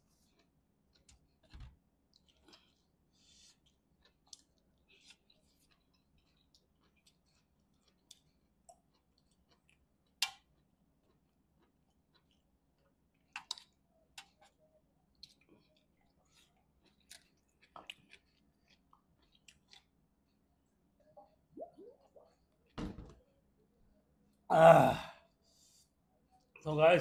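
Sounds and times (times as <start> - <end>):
chewing: 0.0 - 22.8
fingers eating curry from a plate: 0.2 - 21.5.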